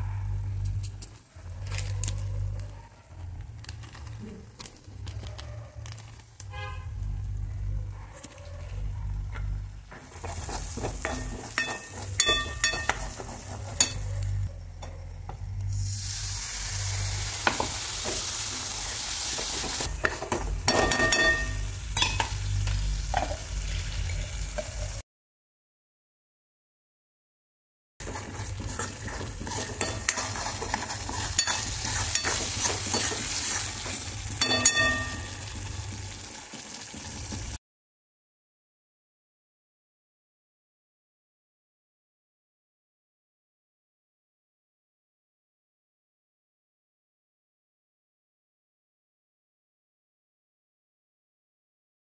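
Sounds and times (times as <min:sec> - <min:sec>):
masala sizzling in hot oil: 0:09.8 - 0:14.5, 0:15.5 - 0:25.0, 0:28.0 - 0:37.6
spoon scraping metal wok: 0:10.1 - 0:14.9, 0:28.0 - 0:35.7
spoon clinking against pan: 0:11.0 - 0:14.1, 0:20.0 - 0:22.4, 0:29.4 - 0:33.2, 0:34.4 - 0:35.5.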